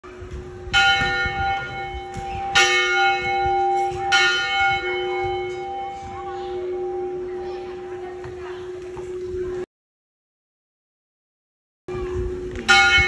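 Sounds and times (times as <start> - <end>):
church bell ringing: 0.6 - 9.6, 12.4 - 13.0.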